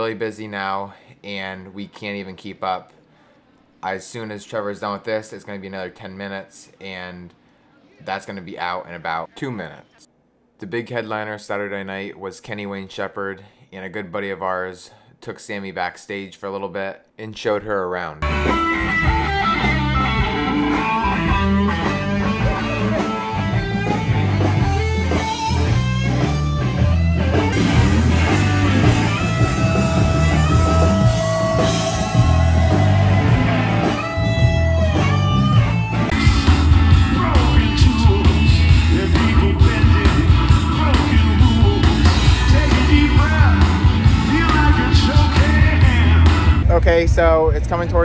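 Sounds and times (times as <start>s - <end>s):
blues-rock band playing: 18.2s - 46.7s
electric guitar: 18.2s - 46.7s
person singing: 36.1s - 46.6s.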